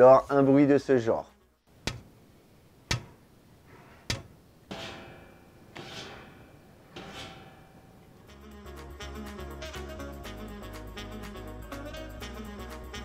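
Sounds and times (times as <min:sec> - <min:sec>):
dry knocks of tableware: 0:01.8 - 0:02.1, 0:02.9 - 0:03.2
metallic clanks ringing: 0:04.1 - 0:08.3.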